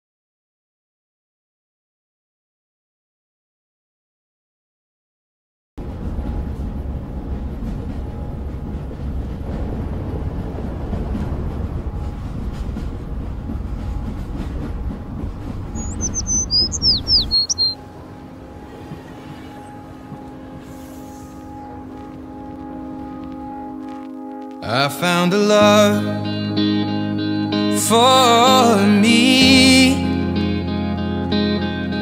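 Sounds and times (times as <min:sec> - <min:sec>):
outdoor rumble: 0:05.8 - 0:23.6
soft sustained music notes: 0:05.8 - 0:32.0
bird chirping: 0:15.7 - 0:18.0.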